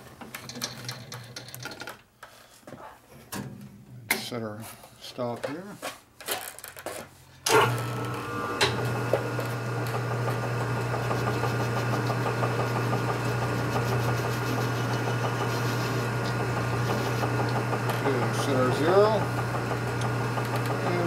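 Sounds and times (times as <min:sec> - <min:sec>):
metal lathe running: 0:07.5 - 0:21.0.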